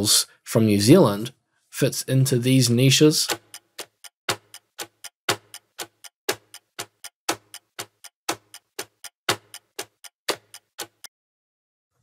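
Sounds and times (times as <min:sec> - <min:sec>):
clock ticking: 0:02.7 - 0:11.1.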